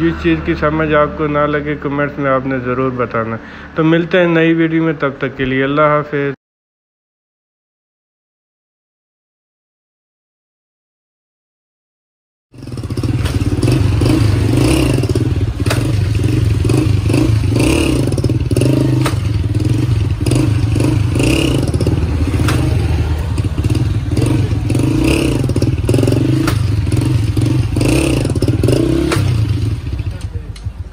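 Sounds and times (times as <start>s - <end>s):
motorcycle engine running: 12.5s - 30.9s.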